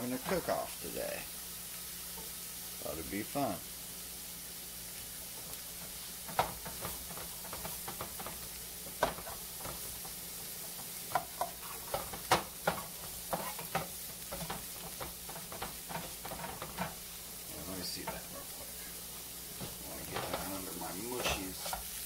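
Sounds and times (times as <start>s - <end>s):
mushrooms sizzling in butter: 0.0s - 22.0s
spatulas tapping and scraping pans: 0.1s - 0.6s, 5.3s - 17.2s, 17.9s - 18.8s, 19.5s - 22.0s.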